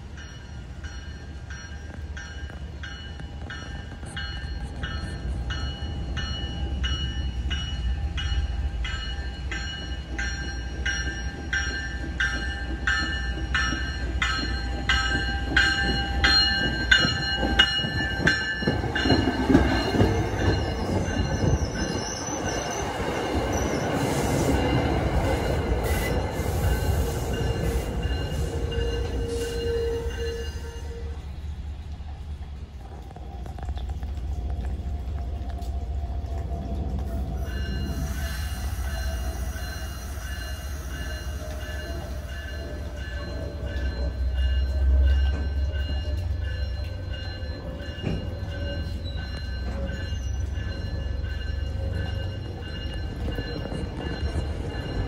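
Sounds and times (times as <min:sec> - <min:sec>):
train wheels rumbling and clacking: 0:00.0 - 0:55.0
warning bell ringing: 0:39.0 - 0:55.0.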